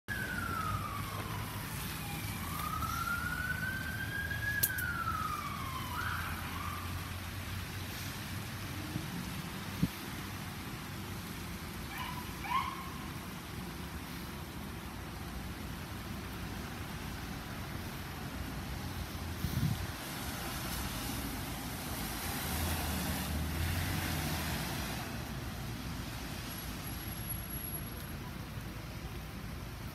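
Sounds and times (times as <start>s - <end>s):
ambulance siren wailing: 0.1s - 7.3s
traffic on wet road: 0.1s - 29.9s.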